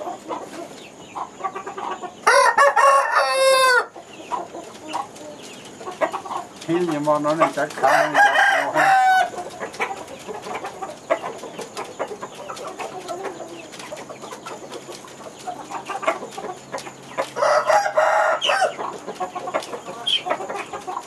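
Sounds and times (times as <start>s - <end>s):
rooster crowing: 2.2s - 3.9s, 7.8s - 9.4s, 17.4s - 18.8s.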